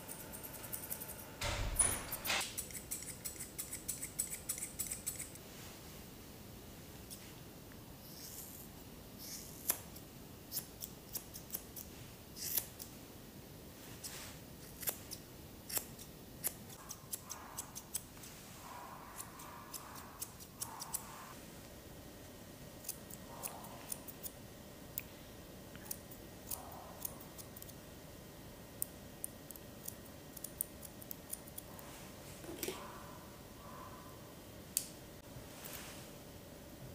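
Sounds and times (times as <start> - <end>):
scissors snipping hair: 0.0 - 5.4, 9.3 - 12.9, 14.6 - 18.1, 19.2 - 21.2, 25.8 - 27.8.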